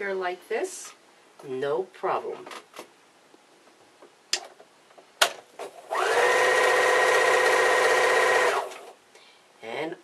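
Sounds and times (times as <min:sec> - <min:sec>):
sewing machine stitching: 0:05.7 - 0:08.9.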